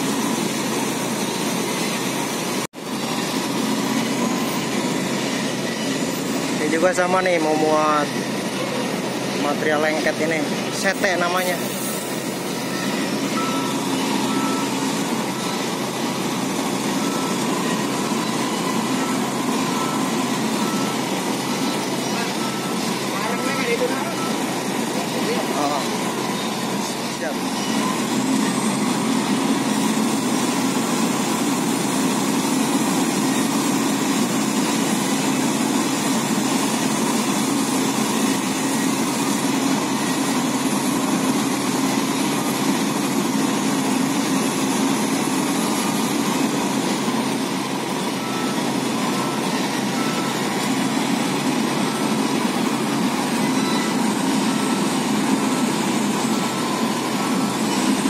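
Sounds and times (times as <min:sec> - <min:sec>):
heavy diesel engines running: 0:00.0 - 0:58.0
faint repeated beep: 0:12.7 - 0:15.6, 0:17.0 - 0:24.4, 0:53.4 - 0:54.9.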